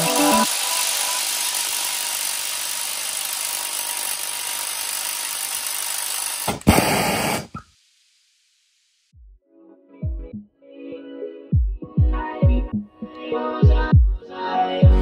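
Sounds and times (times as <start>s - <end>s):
impact driver running: 0.1s - 7.6s.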